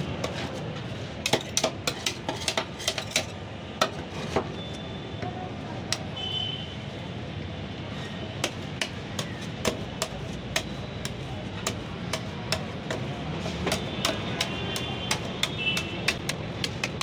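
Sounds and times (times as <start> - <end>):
metal spatulas scraping cold plate: 0.0 - 3.4
steady background noise: 0.0 - 17.0.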